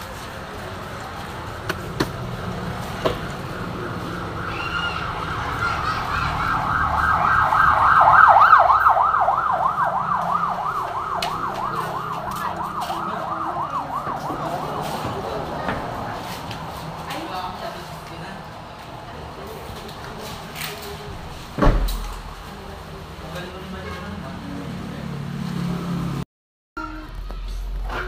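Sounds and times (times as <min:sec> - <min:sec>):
siren yelping: 0:04.3 - 0:15.6.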